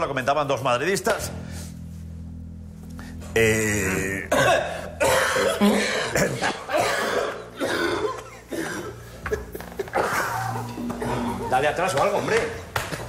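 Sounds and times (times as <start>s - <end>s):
man coughing harshly: 4.2s - 11.6s.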